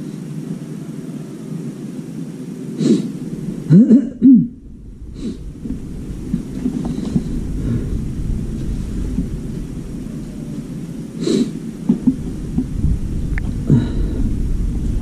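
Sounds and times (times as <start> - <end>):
low background rumble: 0.0 - 15.0
person coughing: 3.7 - 4.6.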